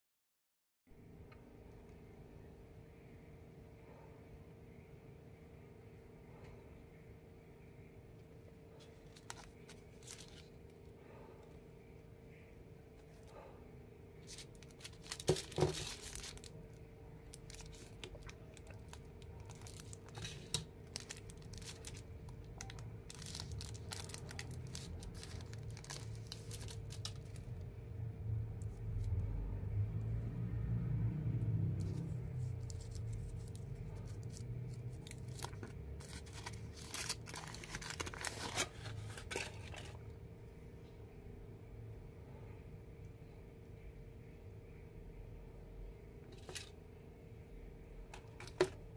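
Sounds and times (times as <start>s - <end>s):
foil wrapper crinkling and tearing: 8.8s - 10.6s, 14.2s - 27.6s, 31.9s - 40.0s.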